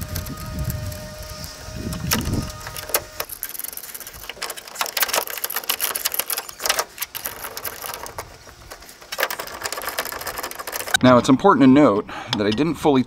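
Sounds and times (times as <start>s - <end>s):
metal clicking and knocking: 2.0s - 11.0s.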